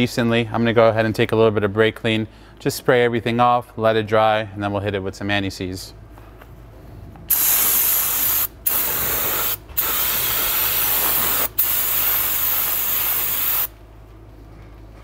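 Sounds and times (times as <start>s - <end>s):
aerosol spray hissing: 7.3s - 13.8s.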